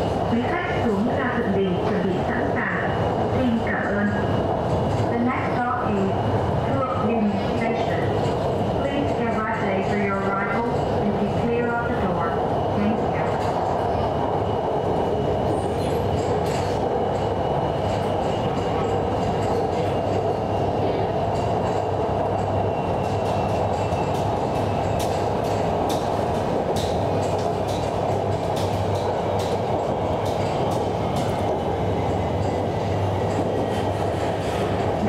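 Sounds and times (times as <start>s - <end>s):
train wheels rumbling: 0.0s - 35.0s.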